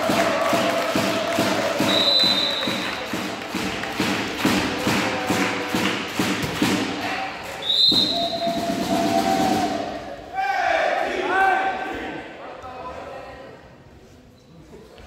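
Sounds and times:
rhythmic thumping: 0.0s - 7.1s
referee whistle blast: 1.8s - 2.9s, 7.6s - 8.7s.

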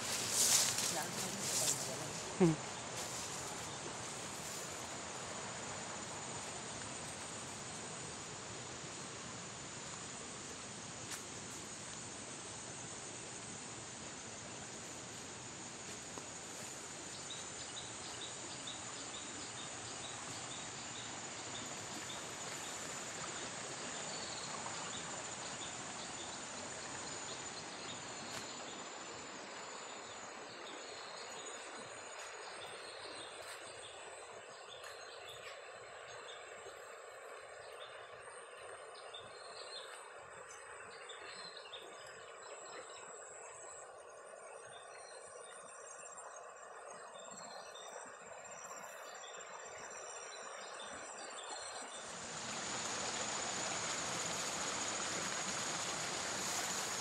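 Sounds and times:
steady hiss: 0.0s - 37.6s, 51.8s - 57.0s
insects chirping: 0.0s - 57.0s.

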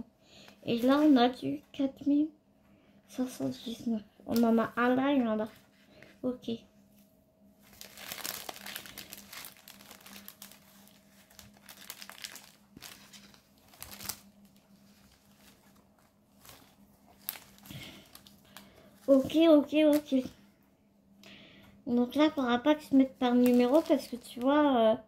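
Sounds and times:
plastic bags crinkling: 7.6s - 20.3s, 23.0s - 24.6s.

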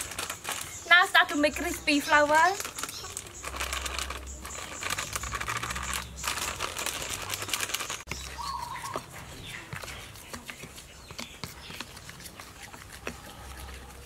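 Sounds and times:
plastic packet crinkling: 0.0s - 11.0s.

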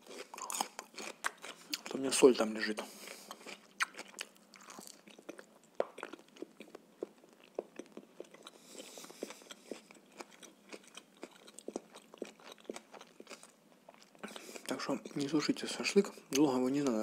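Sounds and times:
person chewing food: 0.0s - 2.0s, 2.8s - 15.3s.

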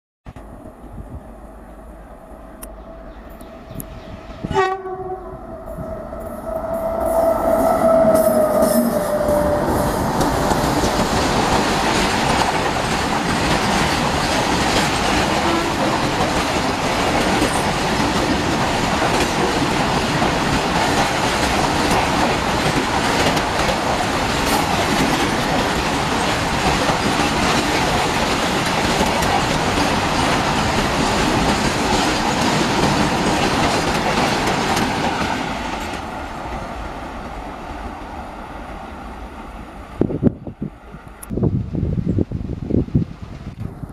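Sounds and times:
freight train rumbling past: 0.3s - 43.9s
train horn: 4.4s - 11.1s, 15.3s - 16.1s.

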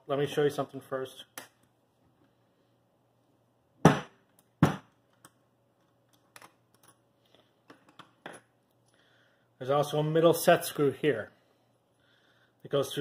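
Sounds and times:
sharp knocks on workbench: 3.8s - 4.9s.

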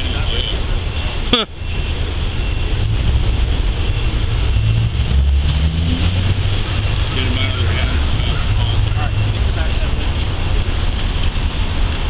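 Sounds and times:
street traffic: 0.0s - 12.0s
car engine idling: 6.2s - 12.0s.

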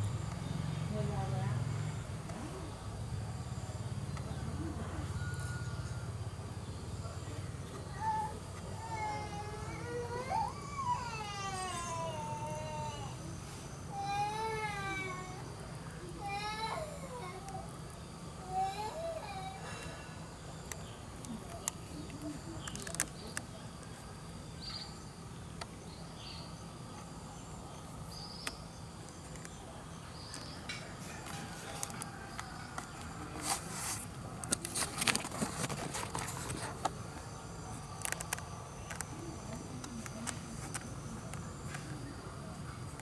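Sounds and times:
insects trilling: 0.0s - 43.0s
clicks and crackling rustles: 20.6s - 24.0s, 30.2s - 42.0s.

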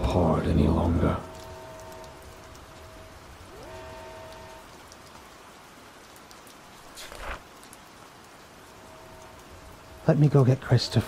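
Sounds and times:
rain falling: 0.0s - 11.0s.

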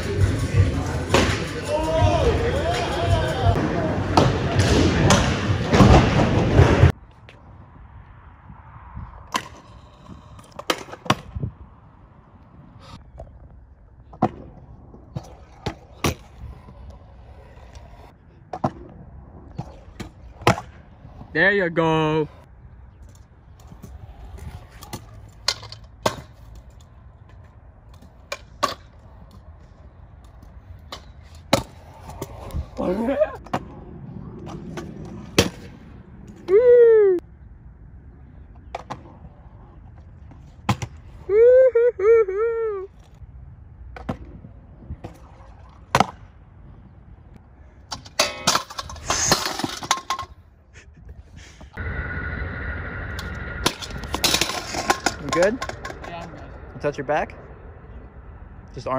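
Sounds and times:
scooter wheels rolling on concrete: 0.0s - 36.6s, 42.7s - 58.9s
metal and concrete clatter: 47.9s - 50.4s, 53.6s - 57.0s
scooter deck clacking on concrete: 53.7s - 56.5s.

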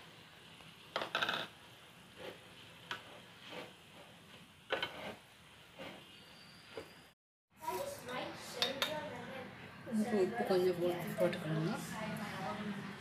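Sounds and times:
plastic spatula scraping a pan: 2.1s - 7.0s.

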